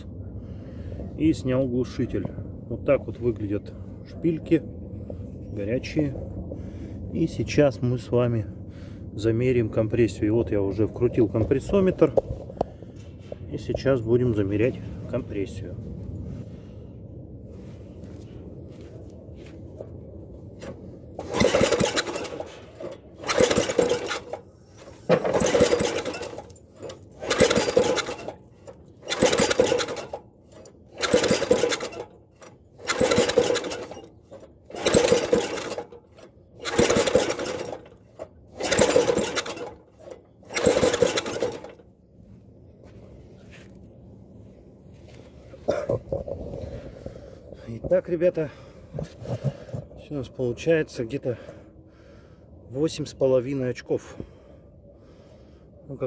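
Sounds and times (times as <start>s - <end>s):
engine cranked by pull-starter: 20.6s - 41.8s.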